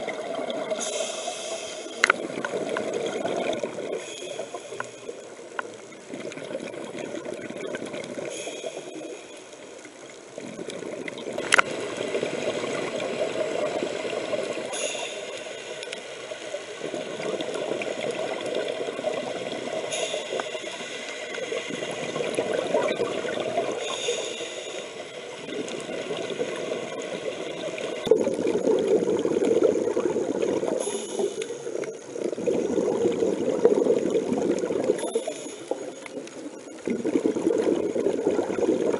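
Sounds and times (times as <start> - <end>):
regulator hissing inhalations: 0.8 - 2.1, 3.9 - 5.1, 14.7 - 16.2, 19.8 - 21.7, 23.8 - 25.3, 30.8 - 31.7
bubbly exhalations: 28.1 - 30.9, 36.8 - 38.9.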